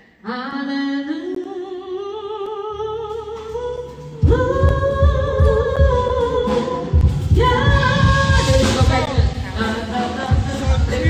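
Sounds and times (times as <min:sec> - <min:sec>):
person singing with vibrato: 0:00.0 - 0:11.0
live band with heavy bass: 0:03.8 - 0:11.0.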